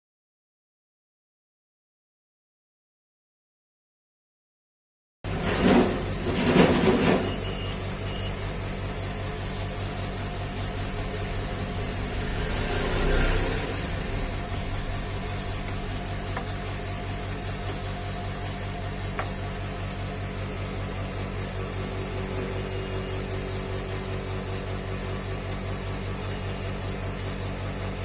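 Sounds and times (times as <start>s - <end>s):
low hum with high whine: 5.3s - 28.0s.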